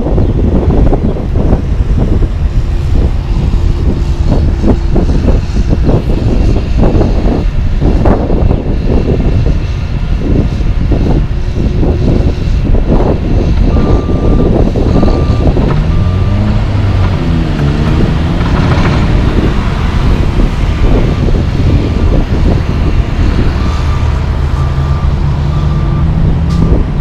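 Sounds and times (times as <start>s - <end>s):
heavy diesel engines running: 0.0s - 27.0s
reversing alarm beeping: 13.7s - 16.6s, 22.9s - 26.8s.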